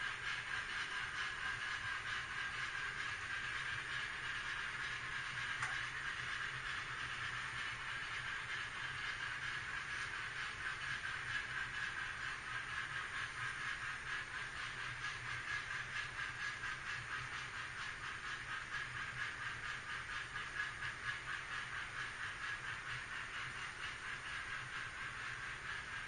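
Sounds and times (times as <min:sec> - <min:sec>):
model train wheels clattering on rail: 0:00.0 - 0:26.0.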